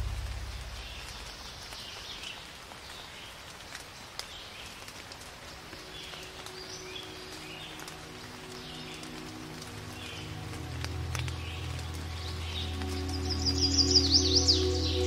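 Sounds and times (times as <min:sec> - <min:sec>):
low musical tones: 0:00.0 - 0:01.8, 0:05.5 - 0:15.0
soft rain-like hiss: 0:00.0 - 0:15.0.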